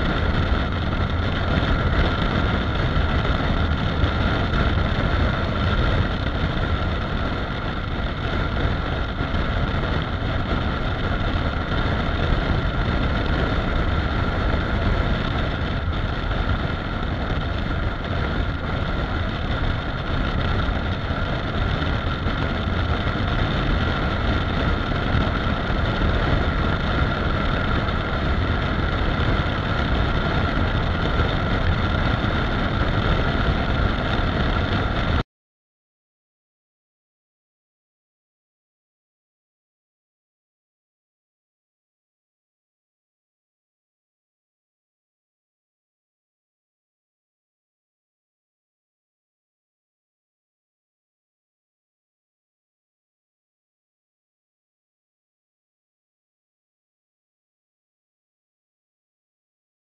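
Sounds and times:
motorcycle engine running: 0.0s - 35.2s
wind on microphone: 0.0s - 35.2s.

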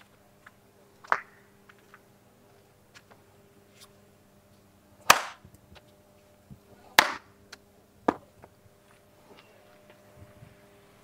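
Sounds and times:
steady low hum: 0.0s - 11.0s
sharp smacks or knocks: 5.1s - 5.4s.

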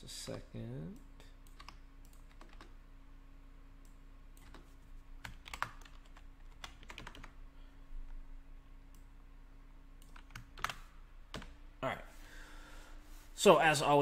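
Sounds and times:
faint electrical hum: 0.0s - 14.0s
keyboard typing: 1.4s - 2.8s, 4.4s - 7.4s, 10.0s - 11.6s.

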